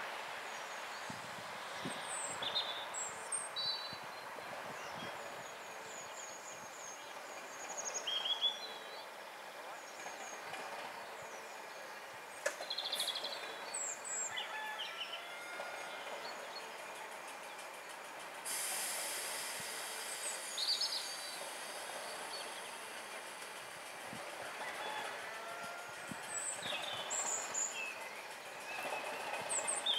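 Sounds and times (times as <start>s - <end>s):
diesel train engine running: 0.0s - 14.4s, 15.1s - 29.9s
sudden hiss: 17.0s - 28.6s
birds chirping: 26.0s - 29.9s.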